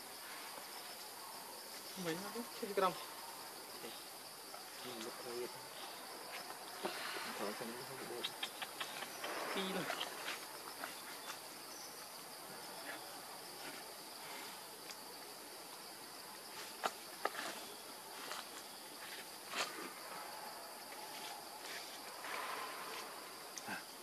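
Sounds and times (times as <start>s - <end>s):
insects buzzing: 0.0s - 24.0s.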